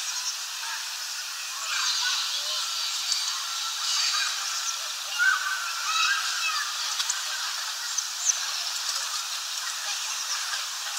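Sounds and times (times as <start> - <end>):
steady background hiss: 0.0 - 10.9
songbirds chirping: 2.9 - 10.9.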